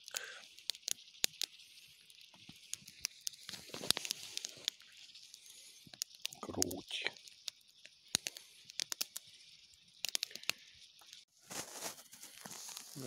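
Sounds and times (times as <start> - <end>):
campfire crackling and popping: 0.0 - 13.0
rustling crunch: 10.4 - 13.0.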